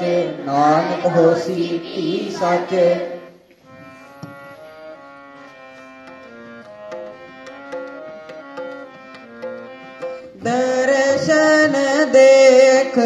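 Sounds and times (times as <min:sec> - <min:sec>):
harmonium melody: 0:00.0 - 0:13.0
tabla strokes: 0:05.6 - 0:11.8.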